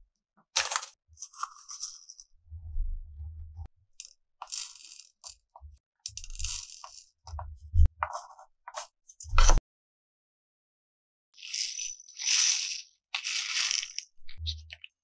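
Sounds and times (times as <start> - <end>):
craft materials rustling: 11.4 - 15.0.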